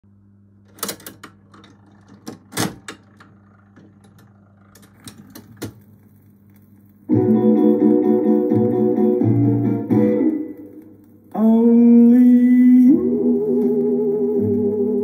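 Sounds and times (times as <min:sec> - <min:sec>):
steady low hum: 0:00.1 - 0:15.0
record changer clicks and clunks: 0:00.6 - 0:11.5.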